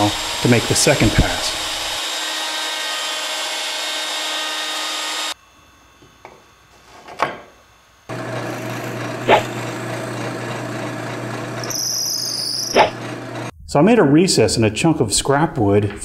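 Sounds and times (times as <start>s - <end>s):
drill press humming: 0.0s - 2.8s, 8.0s - 13.5s
router whining: 0.0s - 6.8s, 8.1s - 13.5s.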